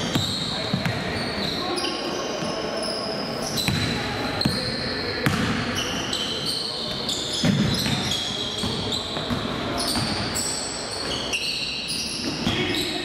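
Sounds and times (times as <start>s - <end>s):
sneaker squeaks: 0.0s - 13.0s
basketball bouncing: 5.2s - 5.6s.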